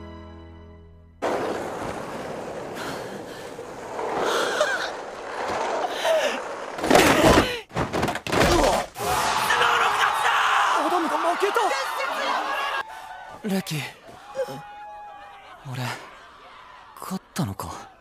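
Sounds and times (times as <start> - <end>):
crowd cheering and yelling: 9.0 - 18.0.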